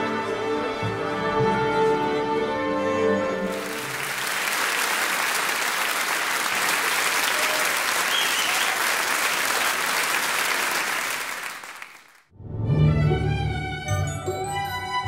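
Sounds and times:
music: 0.0 - 4.1, 12.3 - 15.0
large audience applauding: 3.5 - 12.3.

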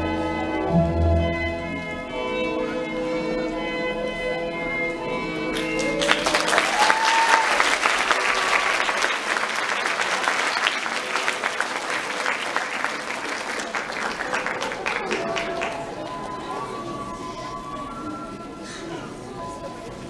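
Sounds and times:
orchestral music: 0.0 - 6.5
audience applause: 5.5 - 16.2
person whooping: 6.6 - 7.6.

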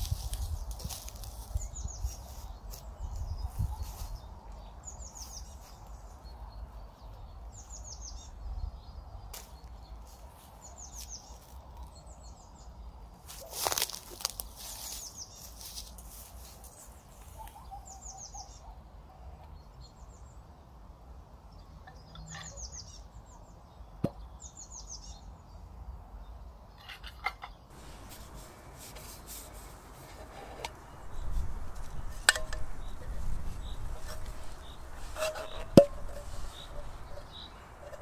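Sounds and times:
songbird calling: 17.2 - 20.4, 21.6 - 25.3, 26.8 - 38.0
low outdoor rumble: 27.7 - 38.0.

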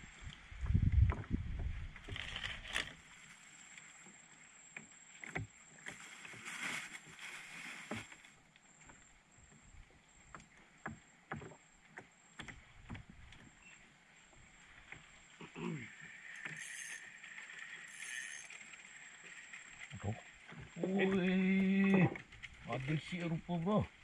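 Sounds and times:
river ambience: 2.0 - 24.0
soft hiss: 5.9 - 9.2.

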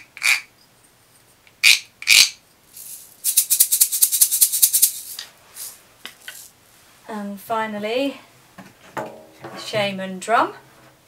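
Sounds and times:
wooden tube shaker: 0.0 - 6.6.

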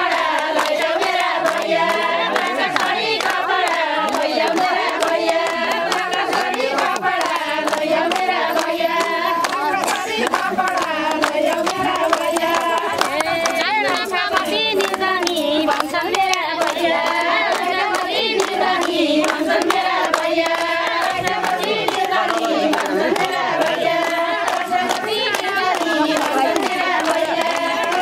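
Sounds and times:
hands clapping along: 0.0 - 28.0
women singing together: 0.0 - 28.0.

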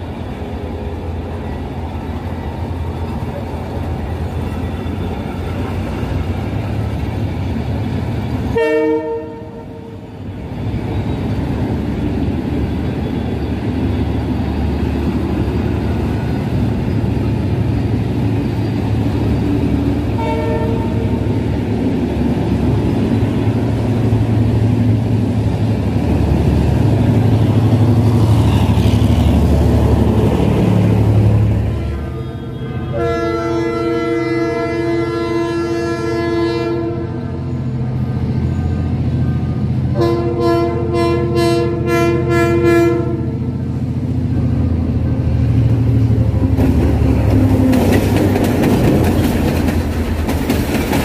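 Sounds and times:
diesel locomotive rumbling: 0.0 - 51.0
train coaches rumbling past: 0.0 - 51.0
train horn: 8.5 - 10.1, 20.1 - 21.3, 31.6 - 37.6, 39.3 - 43.6.

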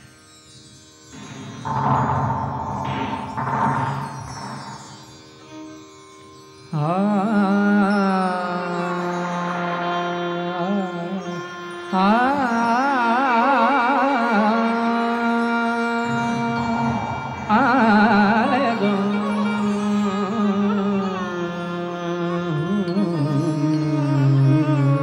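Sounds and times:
indian classical singing: 0.0 - 25.0
steady drone: 1.2 - 5.8, 15.5 - 21.2.

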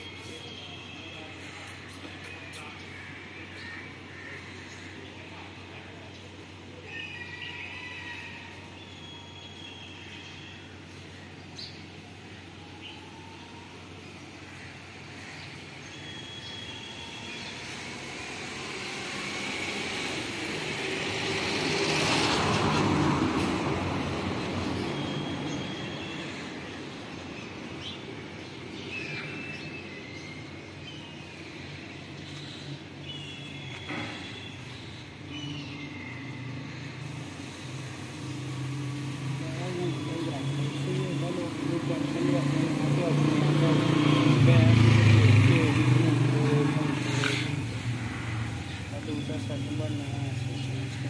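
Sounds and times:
passing vehicle: 17.1 - 26.6, 33.6 - 51.0.

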